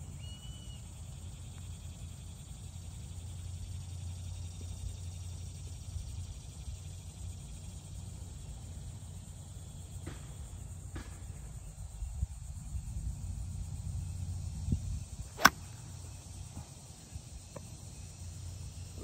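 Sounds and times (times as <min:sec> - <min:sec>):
golf club striking ball: 0:15.4 - 0:15.8.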